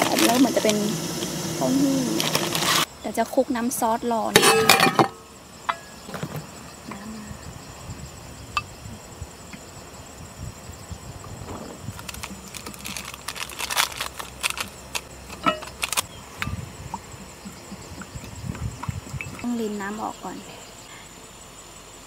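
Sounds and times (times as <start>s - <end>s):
cooking pot and utensils clinking: 4.3s - 6.3s, 15.3s - 15.8s.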